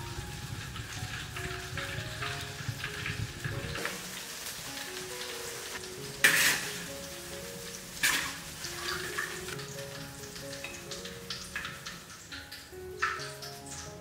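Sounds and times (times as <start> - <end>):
shrimp sizzling in hot oil: 0.0 - 14.0
soft background music: 0.0 - 14.0
metal spatula stirring: 6.1 - 7.0, 8.0 - 9.7.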